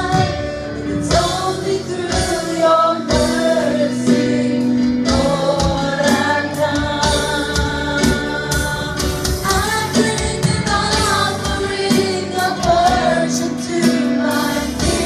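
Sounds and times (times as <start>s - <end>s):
drum kit beat: 0.0s - 15.0s
live band: 0.0s - 15.0s
voices singing a hymn: 0.0s - 15.0s.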